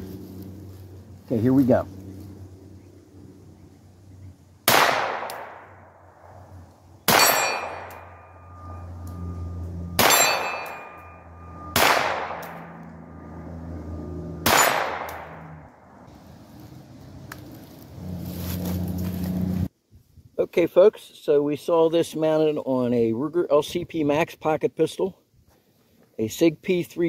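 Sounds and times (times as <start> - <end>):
pistol shots: 4.6 - 5.7, 7.0 - 8.0, 10.0 - 10.9, 11.6 - 12.6, 14.4 - 15.4
steel targets clanging: 7.1 - 9.0, 9.8 - 12.4, 14.4 - 15.1.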